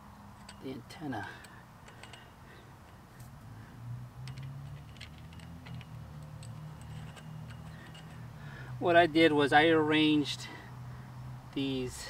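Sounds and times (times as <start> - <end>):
hose clamp screw clicking: 1.4 - 3.4, 4.2 - 8.3.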